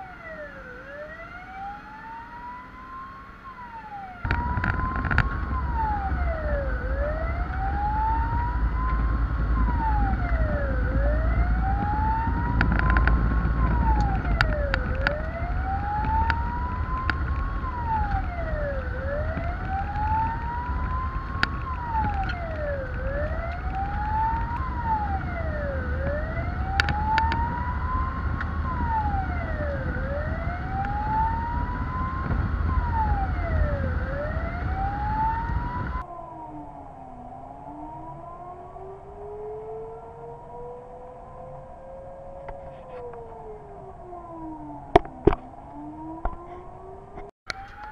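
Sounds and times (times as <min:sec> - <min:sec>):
truck engine rumble: 0:00.0 - 0:36.1
faint higher siren: 0:00.0 - 0:47.9
fire engine siren wailing: 0:00.0 - 0:47.9.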